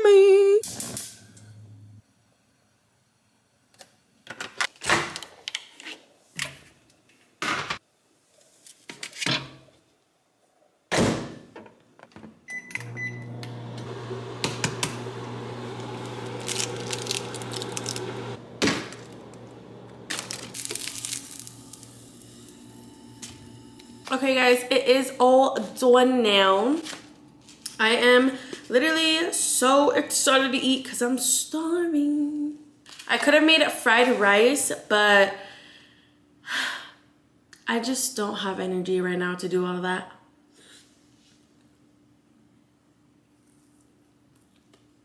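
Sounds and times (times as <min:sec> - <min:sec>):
microwave oven humming: 0:12.5 - 0:25.2.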